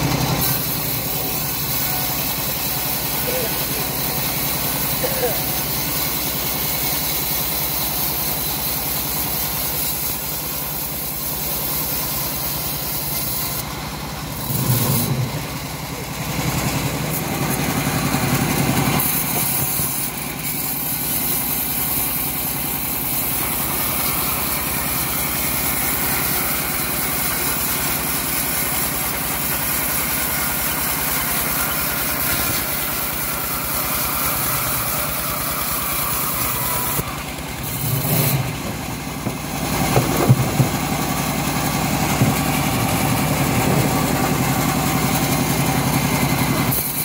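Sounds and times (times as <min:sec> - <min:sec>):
bandsaw mill cutting log: 0:00.0 - 0:47.0.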